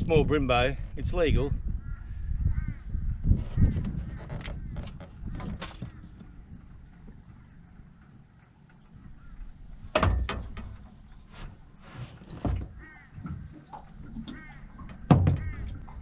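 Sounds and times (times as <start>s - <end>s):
knocks and thuds in metal dinghy: 3.3s - 16.0s.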